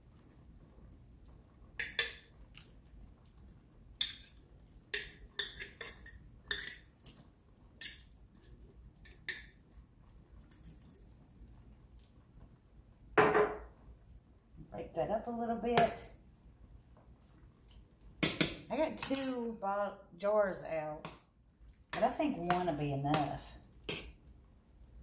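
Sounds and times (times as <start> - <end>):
utensil clinking against metal pot: 1.8 - 2.3, 4.0 - 6.9.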